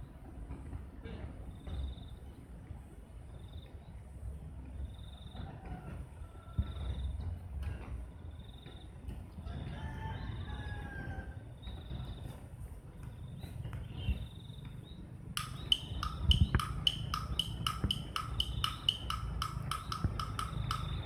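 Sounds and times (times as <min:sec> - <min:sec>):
small bird chip notes: 0:15.4 - 0:21.0.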